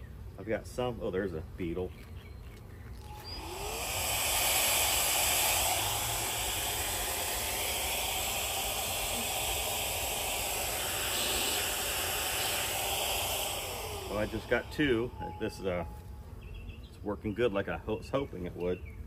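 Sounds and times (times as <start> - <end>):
handheld vacuum whine and hiss: 3.0 - 16.1.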